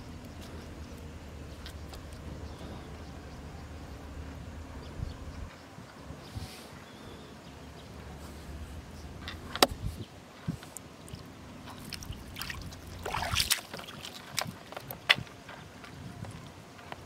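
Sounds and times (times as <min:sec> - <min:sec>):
river water splashing: 0:10.8 - 0:15.2.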